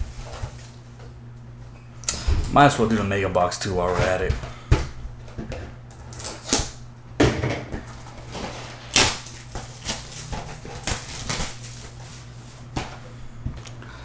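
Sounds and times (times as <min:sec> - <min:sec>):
plastic shrink wrap crinkling: 0:07.9 - 0:12.6.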